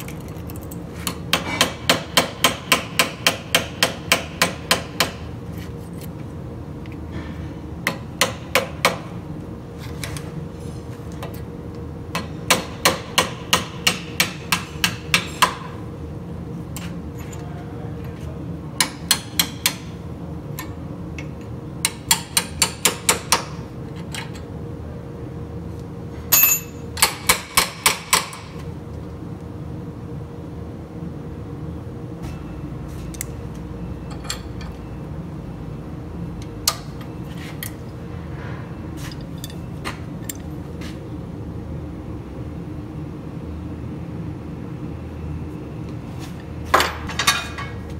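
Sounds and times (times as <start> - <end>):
steady low hum: 0.0 - 47.9
hammer striking chisel on metal: 1.3 - 5.2, 7.9 - 9.1, 12.2 - 15.7, 18.8 - 19.9, 21.8 - 23.6, 26.3 - 28.5.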